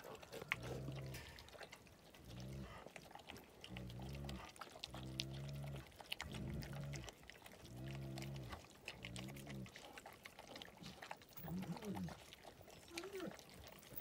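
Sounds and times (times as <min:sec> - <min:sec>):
dog growling deeply: 0:00.0 - 0:01.4, 0:02.2 - 0:02.9, 0:03.7 - 0:12.2.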